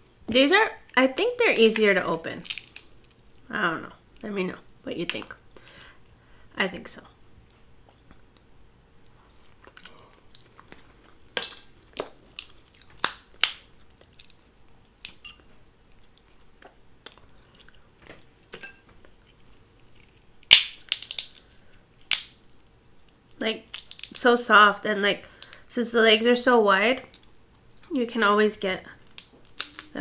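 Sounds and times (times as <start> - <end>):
crab shells cracking: 0.9 - 3.4, 9.6 - 17.8, 19.2 - 24.3, 25.3 - 25.7, 29.0 - 30.0
chewing: 7.8 - 11.2, 15.8 - 17.9.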